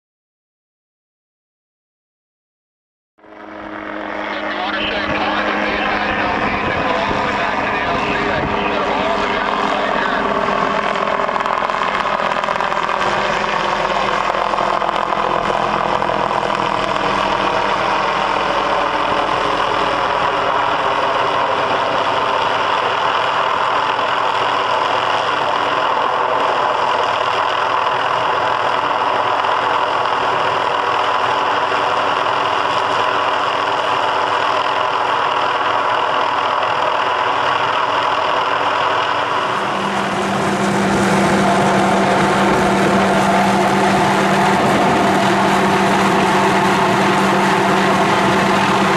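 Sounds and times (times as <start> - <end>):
helicopter hovering: 3.2 - 48.9
steady low hum: 39.3 - 48.9.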